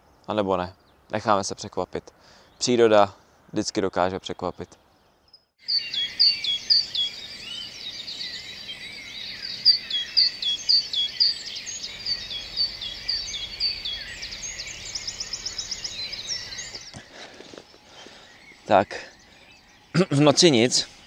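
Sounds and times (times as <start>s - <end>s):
low steady hiss: 0.0s - 21.0s
songbirds singing: 0.0s - 21.0s
bird trill: 4.6s - 21.0s.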